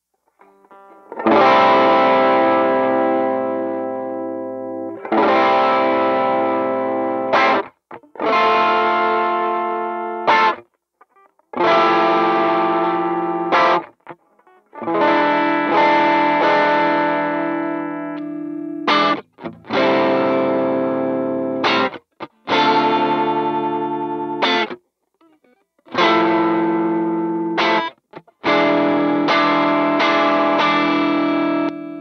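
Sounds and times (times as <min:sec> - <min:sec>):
distorted electric guitar chords: 0:00.4 - 0:10.6, 0:11.2 - 0:32.0.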